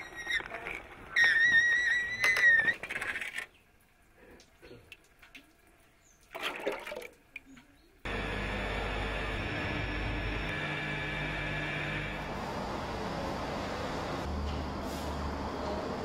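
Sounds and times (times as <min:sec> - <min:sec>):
water sloshing in metal basin: 0:04.6 - 0:07.6.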